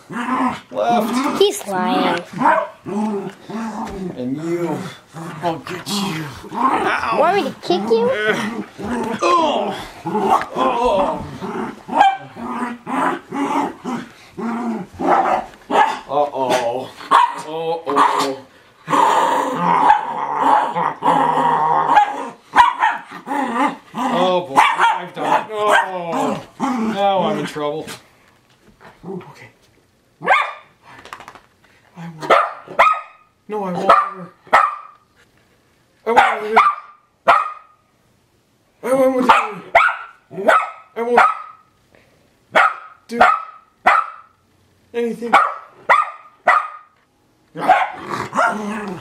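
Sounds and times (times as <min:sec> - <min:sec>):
dog growling: 0:00.0 - 0:28.0, 0:47.5 - 0:49.0
dog barking: 0:02.4 - 0:02.8, 0:11.9 - 0:12.3, 0:15.0 - 0:16.0, 0:17.1 - 0:18.2, 0:21.9 - 0:23.1, 0:24.6 - 0:26.0, 0:30.2 - 0:30.7, 0:32.2 - 0:33.3, 0:33.9 - 0:35.0, 0:36.1 - 0:37.8, 0:39.2 - 0:41.7, 0:42.5 - 0:44.4, 0:45.3 - 0:47.0, 0:47.6 - 0:48.6.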